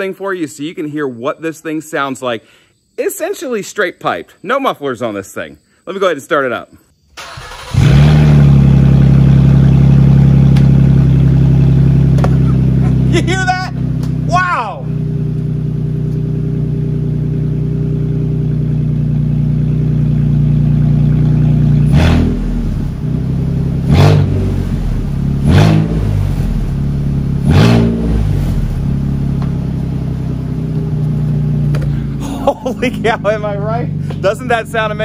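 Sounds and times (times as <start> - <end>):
loud engine idling and revving: 7.4 - 35.0.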